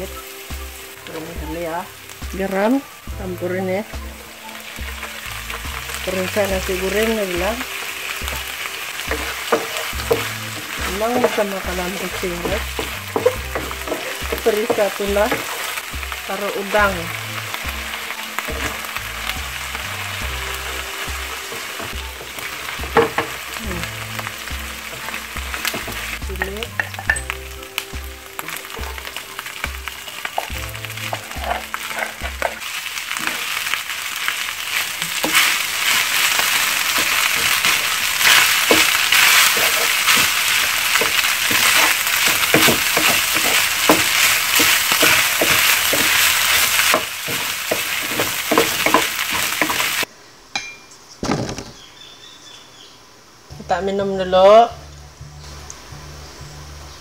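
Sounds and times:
food sizzling in hot oil: 0.0s - 50.1s
spatula scraping and tapping pan: 7.3s - 16.0s, 20.6s - 23.6s, 24.2s - 33.6s, 34.7s - 50.8s.

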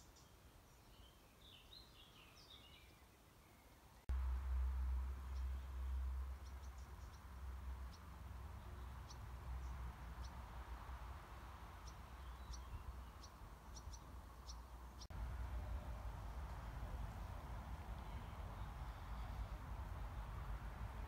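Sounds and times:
bird chirps: 11.8s - 15.1s.

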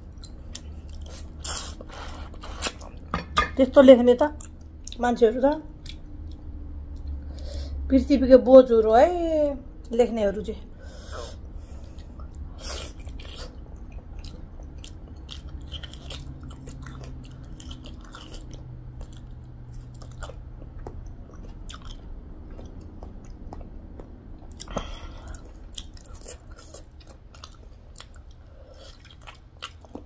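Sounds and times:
person chewing with wet mouth clicks: 11.8s - 30.0s.

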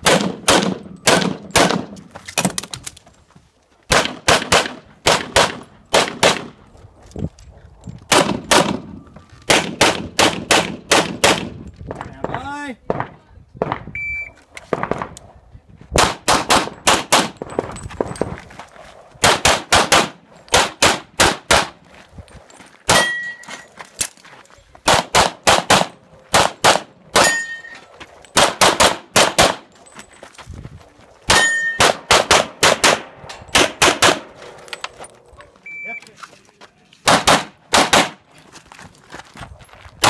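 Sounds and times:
pistol firing rapidly: 0.0s - 1.9s, 3.9s - 6.5s, 9.5s - 11.5s, 16.0s - 17.4s, 19.2s - 21.7s, 24.9s - 27.3s, 28.4s - 29.6s, 31.3s - 34.3s, 37.1s - 38.2s
shot timer beep: 14.0s - 14.4s, 35.6s - 36.1s
steel targets pinging: 22.9s - 23.7s, 27.1s - 27.8s, 31.3s - 32.1s.

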